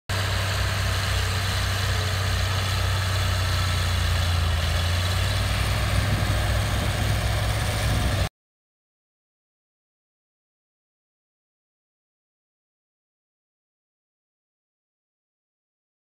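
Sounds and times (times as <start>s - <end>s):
bulldozer diesel engine droning: 0.1s - 8.3s.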